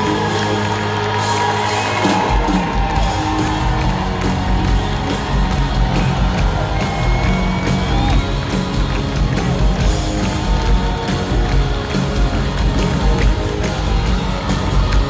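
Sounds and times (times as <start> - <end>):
crowd whooping and cheering: 0.0 - 15.0
live country band playing: 0.0 - 15.0.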